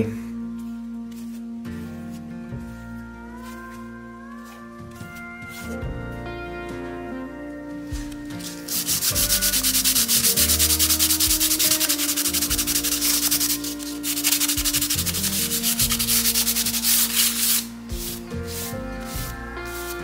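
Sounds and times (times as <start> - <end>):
sandpaper rubbing on paper: 8.4 - 20.0.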